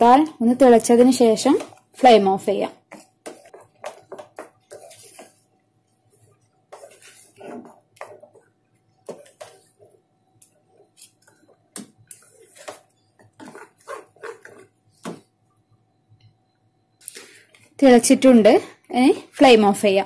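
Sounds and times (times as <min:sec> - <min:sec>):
spatula stirring thick mixture in pan: 0:00.8 - 0:15.4.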